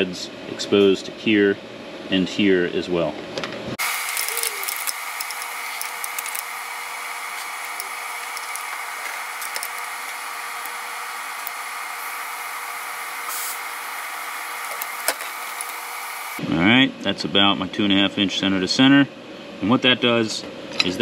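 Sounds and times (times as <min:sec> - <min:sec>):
workshop hiss and hum: 0:00.0 - 0:21.0
faint clicks of metal parts: 0:04.1 - 0:06.4, 0:07.4 - 0:09.9.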